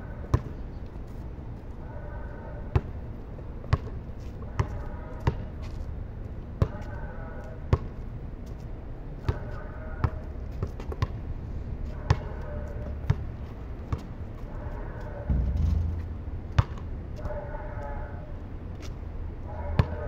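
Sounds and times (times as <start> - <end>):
short low rumble: 15.3 - 17.2.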